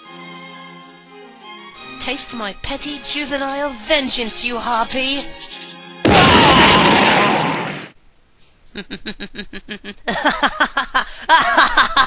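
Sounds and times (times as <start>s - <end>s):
cartoon energy beam blast: 6.1s - 7.9s.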